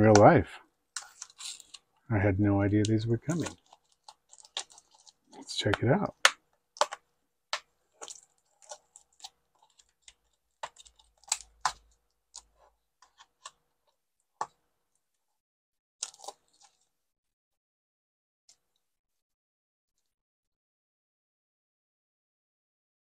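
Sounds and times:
plastic wrap crackling: 1.0s - 2.1s, 2.8s - 7.0s, 7.9s - 13.5s.

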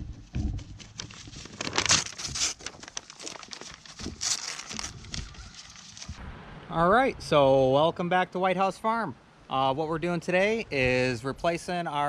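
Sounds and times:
paper crinkling and tearing: 0.6s - 6.2s.

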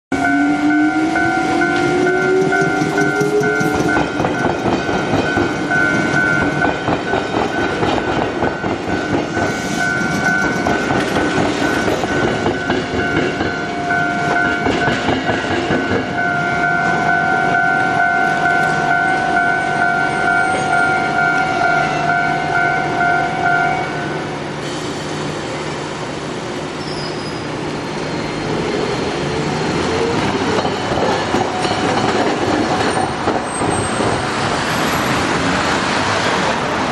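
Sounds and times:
steady high tone: 0.1s - 15.2s, 15.8s - 24.4s
road traffic: 0.1s - 36.9s
streetcar rumble: 0.1s - 36.9s
streetcar wheels clacking: 0.2s - 21.4s, 26.8s - 36.9s.

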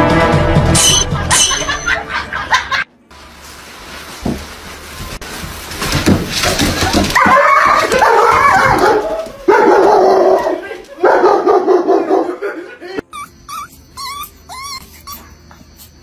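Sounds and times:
loud music: 0.0s - 1.7s
dog whining and yelping: 13.0s - 16.0s.

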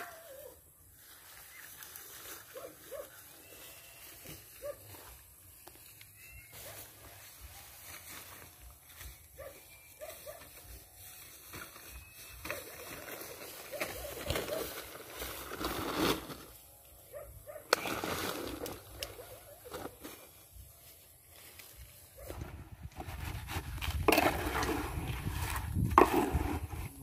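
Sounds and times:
plastic sacks rustling: 11.0s - 16.6s, 17.8s - 20.5s.

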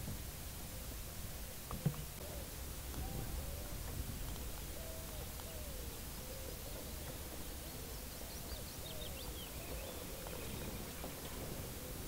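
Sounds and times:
low wavering bird calling: 4.7s - 11.1s
high twittering birdsong: 4.7s - 11.4s.

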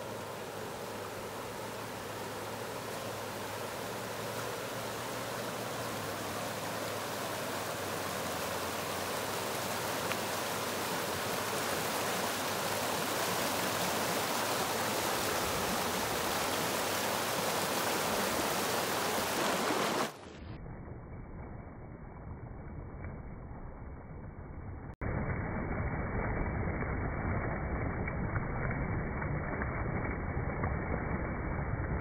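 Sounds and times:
flowing water rushing: 0.0s - 20.4s.

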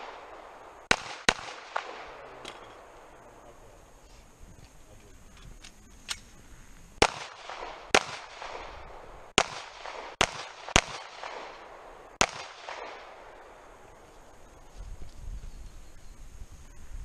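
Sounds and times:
handgun shots: 0.9s - 2.8s, 7.0s - 8.7s.

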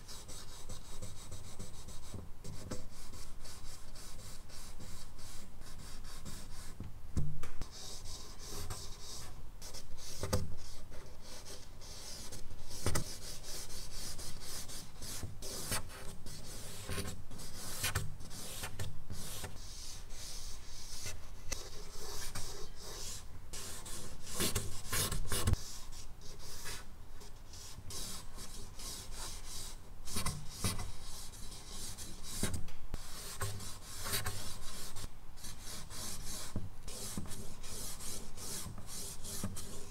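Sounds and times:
charcoal scratching on paper: 7.7s - 26.8s, 27.5s - 39.9s.

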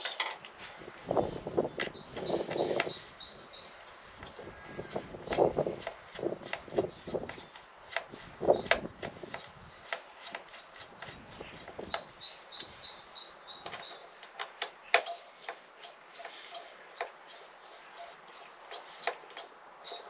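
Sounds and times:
bird chirping: 1.2s - 5.6s, 8.4s - 8.8s, 9.4s - 15.4s, 16.2s - 20.0s.

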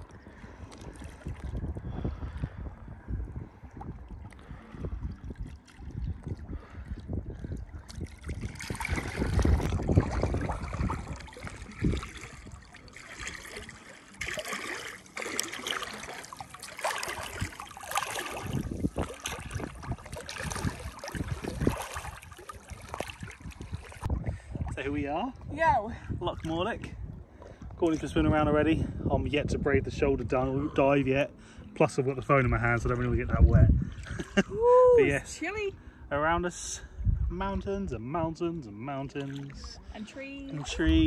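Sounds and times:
water lapping and splashing: 0.0s - 29.1s, 30.2s - 35.6s, 36.7s - 41.0s.

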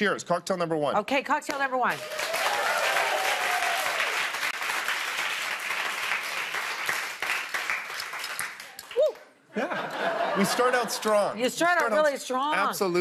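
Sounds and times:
audience applauding: 1.9s - 9.3s.

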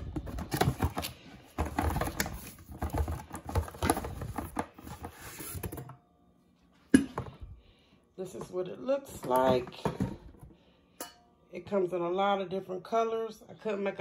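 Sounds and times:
packaging rustling and crinkling: 0.0s - 5.8s.

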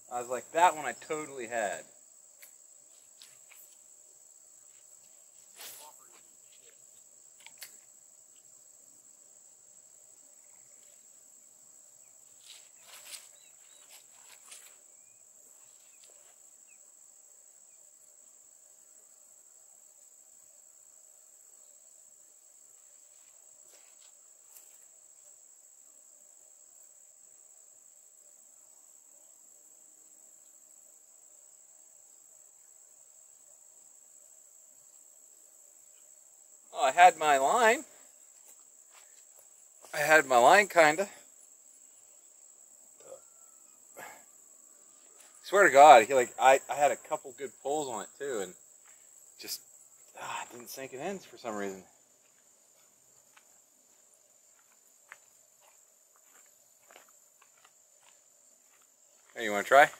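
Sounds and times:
crickets chirping: 0.0s - 59.9s.

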